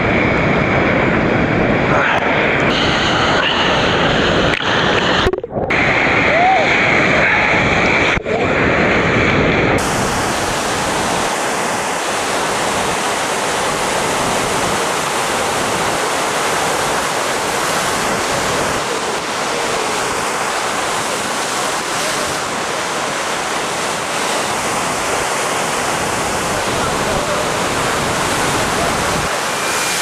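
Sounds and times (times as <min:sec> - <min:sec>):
ocean surf breaking: 0:01.8 - 0:09.1, 0:09.7 - 0:30.0.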